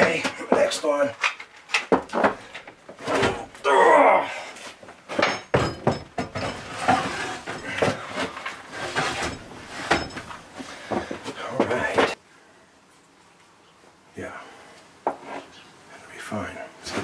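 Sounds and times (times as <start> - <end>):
knocks and thuds: 5.1 - 8.3.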